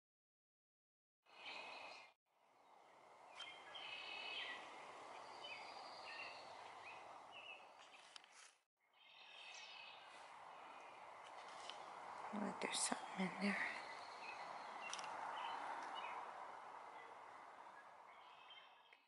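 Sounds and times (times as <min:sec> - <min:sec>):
songbirds chirping and singing: 0:01.3 - 0:08.2, 0:08.9 - 0:19.0.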